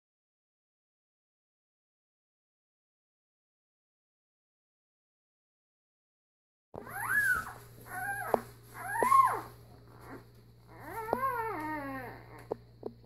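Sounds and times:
puppy whimpering cries: 0:06.8 - 0:12.6.

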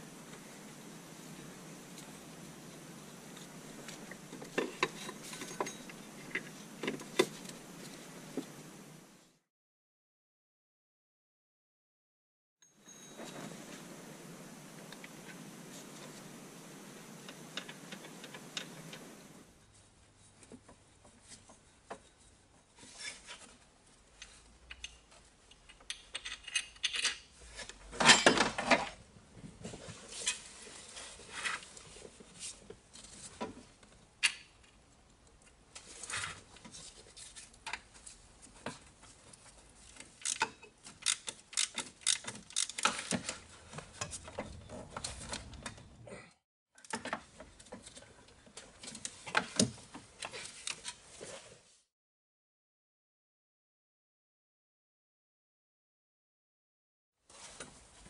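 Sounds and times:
steady hiss: 0:00.0 - 0:09.4, 0:12.8 - 0:20.0
metal tools clinking and scraping: 0:04.4 - 0:07.6, 0:12.8 - 0:13.8, 0:25.7 - 0:28.8.

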